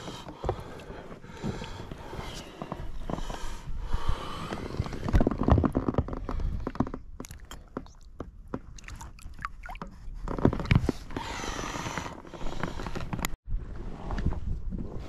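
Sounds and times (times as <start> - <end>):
water splashing and sloshing: 4.7 - 11.1
water dripping: 8.7 - 9.8.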